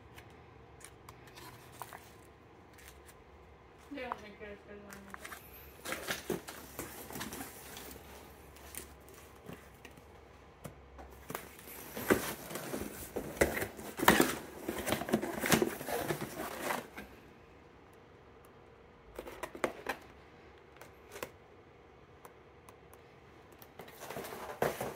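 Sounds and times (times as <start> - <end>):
cardboard rustling and scraping: 0.8 - 3.2, 5.0 - 10.0, 11.1 - 17.2, 23.8 - 24.9.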